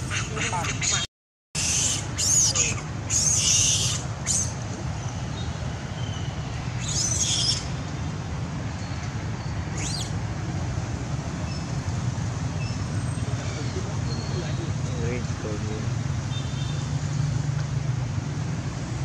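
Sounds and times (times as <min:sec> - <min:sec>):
squeaky animal calls: 0:00.0 - 0:04.6.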